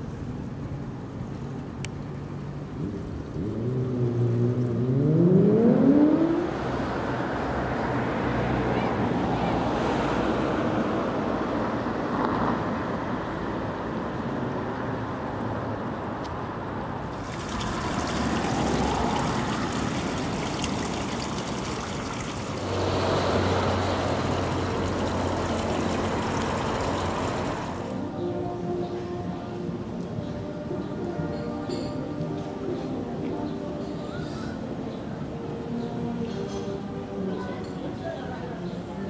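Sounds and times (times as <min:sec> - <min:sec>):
city street traffic rumble: 0:00.0 - 0:39.0
fountain water splashing: 0:17.1 - 0:28.0.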